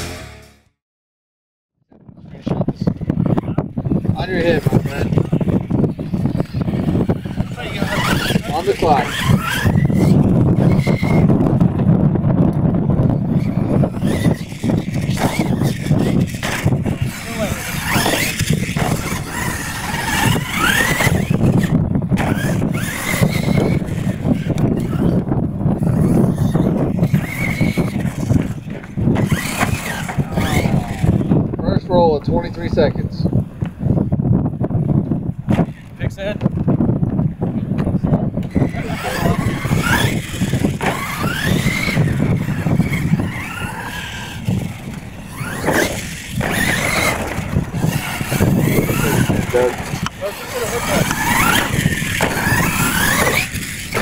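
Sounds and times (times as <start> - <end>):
tyres churning on dirt: 2.4 - 33.1, 35.4 - 54.0
electric motor whining: 2.9 - 32.8, 38.4 - 54.0
truck landing thumps: 51.1 - 54.0.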